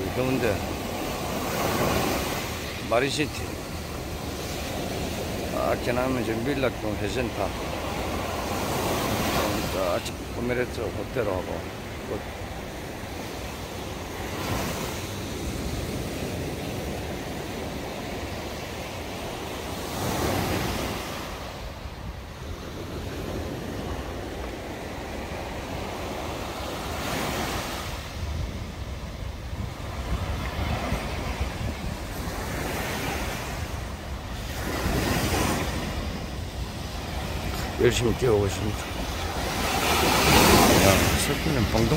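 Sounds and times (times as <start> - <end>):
steady sea noise: 0.0 - 41.9
waves washing in on sand: 0.0 - 41.9
wind rumble on microphone: 27.5 - 38.0.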